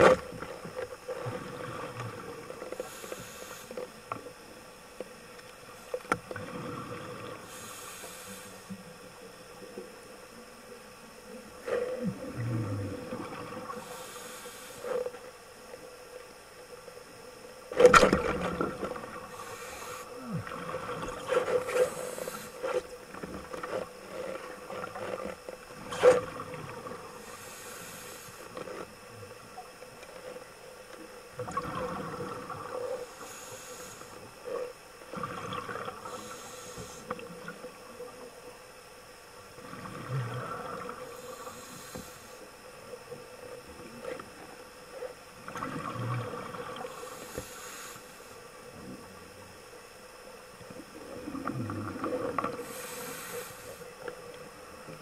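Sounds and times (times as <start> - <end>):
steady underwater hum: 0.0 - 55.0
scuba breathing: 1.1 - 4.0, 6.4 - 8.9, 11.6 - 15.2, 18.5 - 26.0, 26.8 - 29.0, 31.8 - 37.5, 39.7 - 42.6, 46.2 - 48.6, 51.0 - 54.2.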